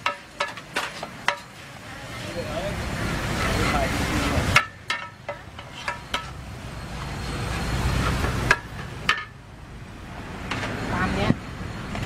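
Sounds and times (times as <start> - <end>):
metal spatulas scraping a wok: 0.0 - 1.9, 3.3 - 6.5, 7.6 - 9.4
vehicle rumble: 0.1 - 12.0.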